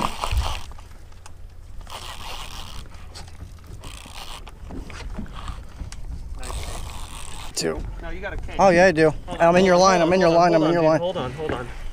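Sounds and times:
fishing rod and reel handling: 0:00.0 - 0:07.7.

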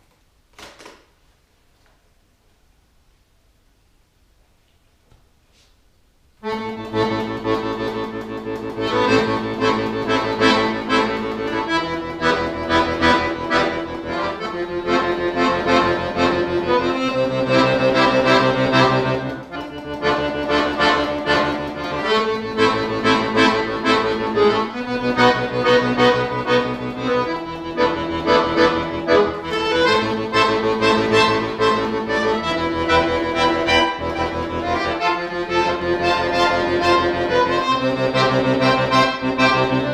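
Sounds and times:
button accordion playing: 0:06.4 - 0:39.9.

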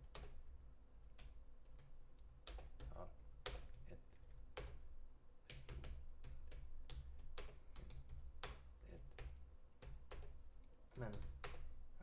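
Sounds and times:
keyboard typing: 0:00.0 - 0:04.9, 0:05.5 - 0:11.8.

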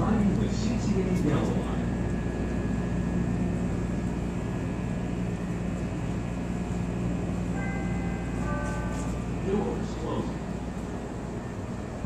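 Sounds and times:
rail car equipment hum: 0:00.0 - 0:12.0
faint high tone: 0:07.5 - 0:10.0.

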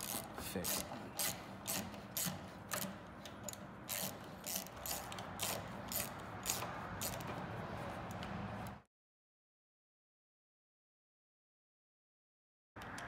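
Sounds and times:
ratcheting screwdriver clicking: 0:00.0 - 0:07.4.

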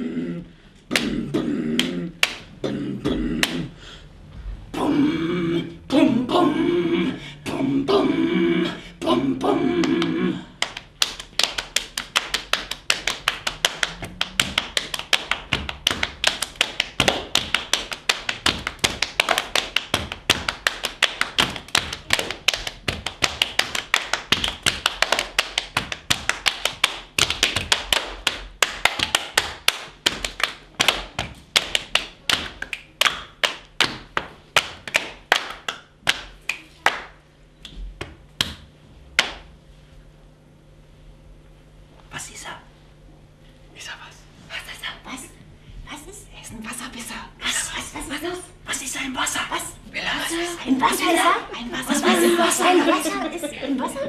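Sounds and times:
hands tapping on bodies: 0:09.9 - 0:39.4.

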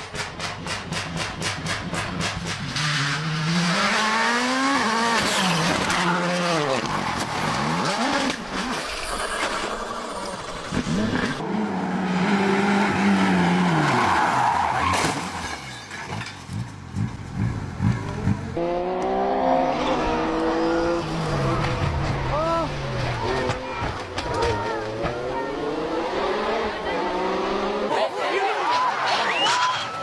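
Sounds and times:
rally car engines revving: 0:00.1 - 0:15.5, 0:16.1 - 0:29.5
tyres skidding: 0:00.1 - 0:30.0.

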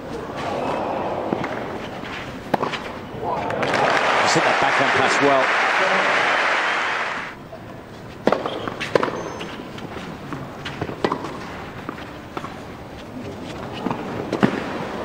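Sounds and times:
tennis ball bouncing: 0:01.3 - 0:04.0, 0:08.2 - 0:12.6, 0:13.3 - 0:15.0
racket striking tennis ball: 0:01.3 - 0:04.2, 0:08.2 - 0:10.0, 0:10.7 - 0:12.6, 0:13.7 - 0:15.0
crowd applause: 0:03.4 - 0:07.4.

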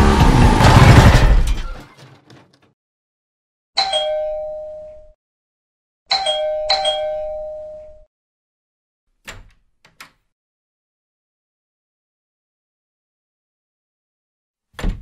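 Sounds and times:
two-note doorbell chime: 0:03.8 - 0:05.2, 0:06.1 - 0:08.1
door bolt clicks: 0:09.2 - 0:10.2.

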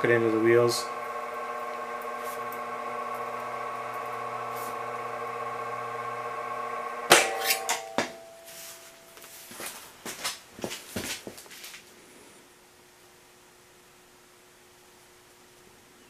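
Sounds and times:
bead roller motor whine: 0:00.0 - 0:08.8
loud metallic clatter: 0:07.1 - 0:08.4.

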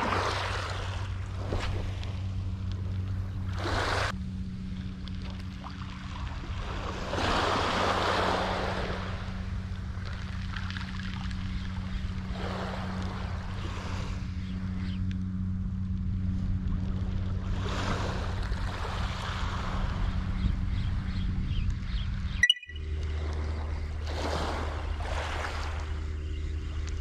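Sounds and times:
steady low hum: 0:00.0 - 0:27.0
waves breaking on pebble beach: 0:06.6 - 0:09.0.

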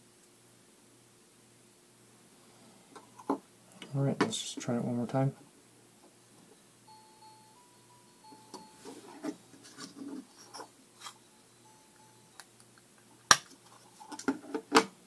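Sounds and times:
faint electronic toy beeps: 0:06.5 - 0:09.4, 0:10.3 - 0:12.6.

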